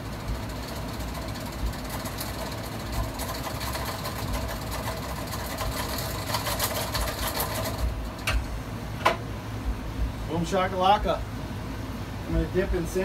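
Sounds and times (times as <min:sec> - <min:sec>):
can seamer whirring rattle: 0:00.0 - 0:08.4.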